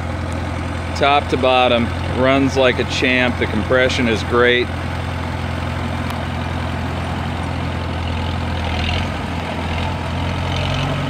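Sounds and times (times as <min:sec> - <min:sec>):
tractor engine idling: 0:00.0 - 0:11.0.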